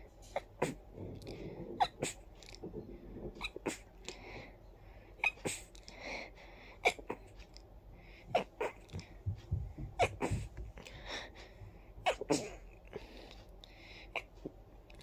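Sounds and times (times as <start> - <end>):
person stifling sneezes: 12.1 - 12.6.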